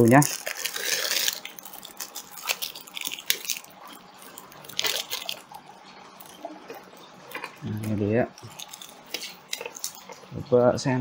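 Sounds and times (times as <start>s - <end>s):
cable rustling: 0.0s - 5.6s.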